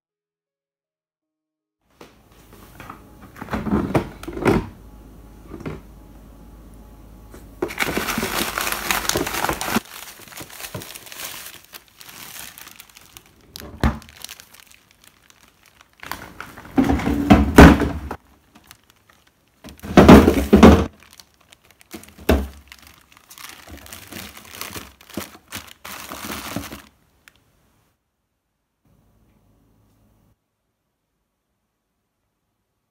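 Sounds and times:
plastic bag crinkling: 7.6 - 27.4
loud knocks and thuds: 16.7 - 18.2, 19.8 - 20.9.

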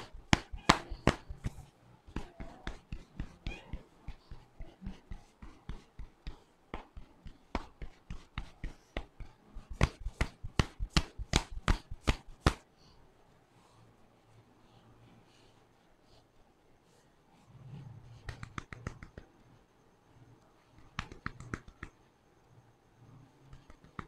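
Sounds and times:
hands tapping on head: 0.0 - 12.6, 18.2 - 19.3, 20.8 - 22.0, 23.5 - 24.0.

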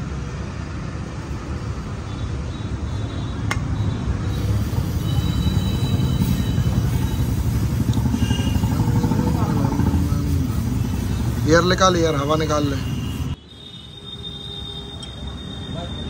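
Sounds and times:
low mechanical rumble: 4.4 - 12.3.

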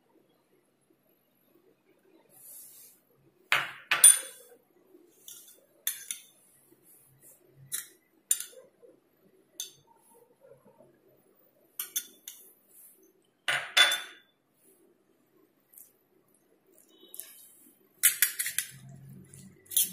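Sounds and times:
metal spoons clinking on bowls: 3.6 - 4.6, 5.2 - 6.4, 7.7 - 8.7, 9.6 - 9.9, 11.8 - 12.5, 13.5 - 14.2, 16.8 - 19.9.

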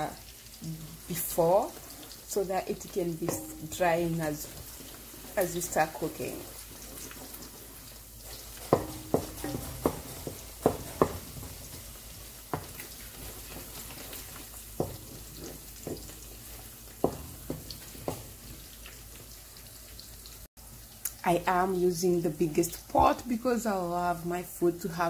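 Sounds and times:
onions sizzling in oil: 0.0 - 25.0
wooden spoon scraping metal pan: 2.8 - 18.7.

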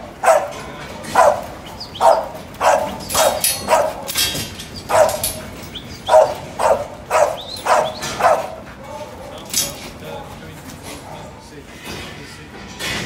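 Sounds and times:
dog barking in a shed: 0.0 - 9.8.

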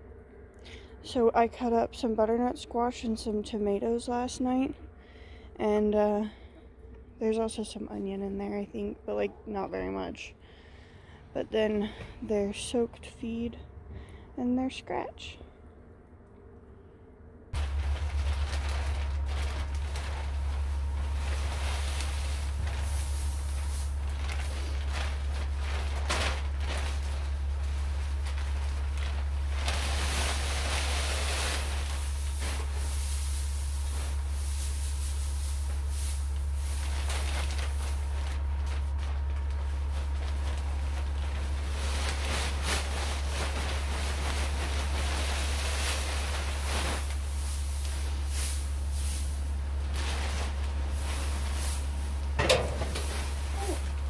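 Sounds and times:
steady low hum: 0.0 - 54.0
hay rustling: 17.6 - 54.0.

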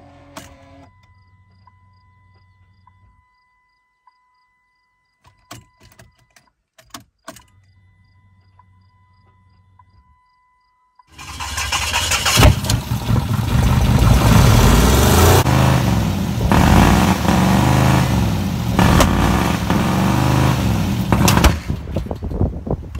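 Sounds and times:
car engine revving: 11.2 - 21.9
sharp cracks: 16.5 - 22.0.

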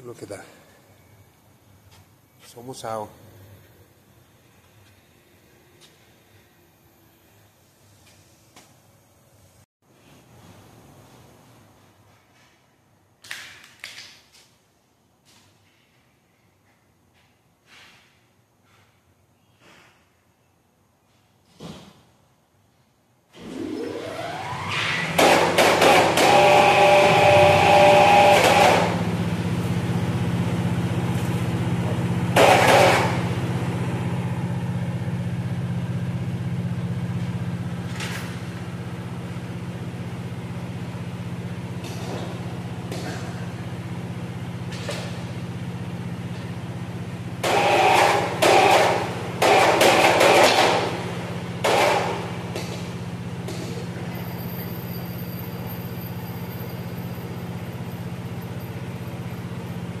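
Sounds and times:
machine hum: 23.3 - 60.0.

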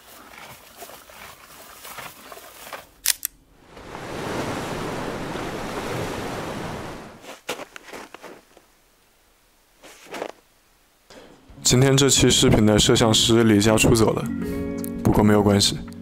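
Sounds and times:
ocean wave washing in: 3.5 - 7.3.

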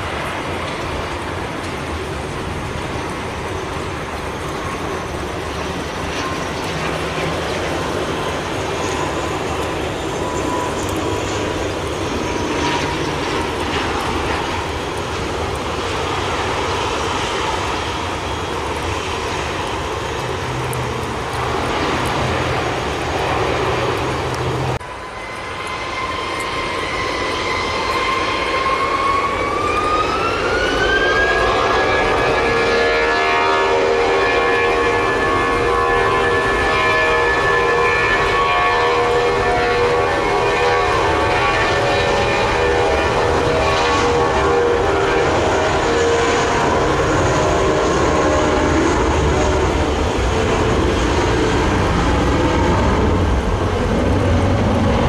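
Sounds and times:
jet engines spooling up: 0.0 - 32.6, 41.0 - 55.0
turboprop engines whine: 0.0 - 55.0.

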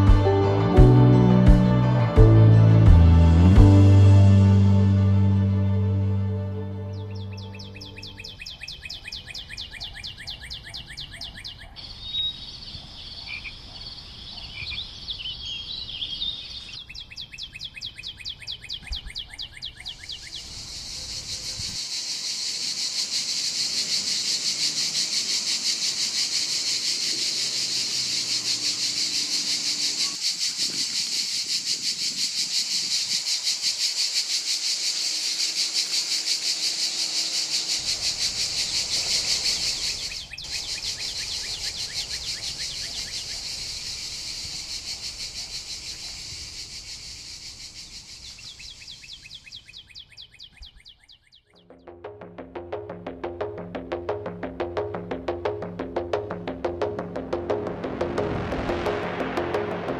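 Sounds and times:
bird chirps: 6.9 - 53.7
insects trilling: 7.2 - 51.1
dense insect chorus: 20.1 - 49.8.

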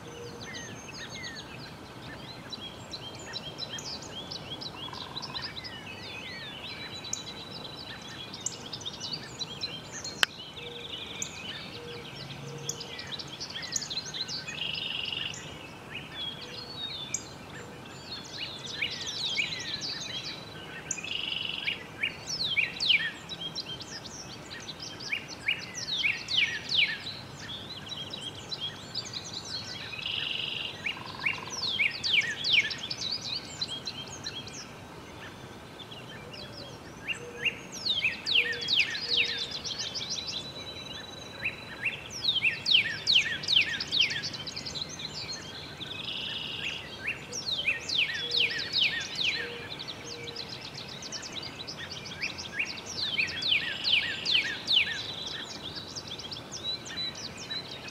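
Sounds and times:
outdoor background hiss: 0.0 - 57.9
songbirds chirping: 0.0 - 57.9.

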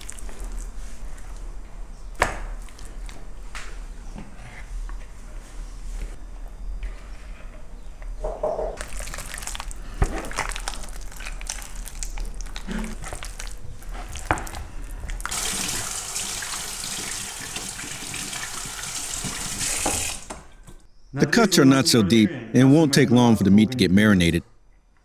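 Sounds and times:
wet squelches and slaps of meat: 8.8 - 15.3.

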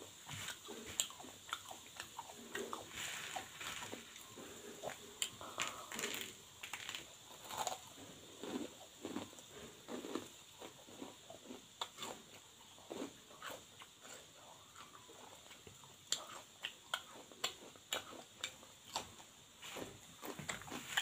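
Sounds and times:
chewing crunchy snack: 0.2 - 21.0.

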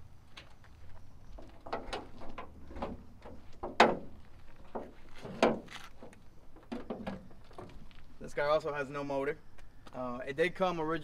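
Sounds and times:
sheet-metal knocks and clicks: 1.6 - 4.1.

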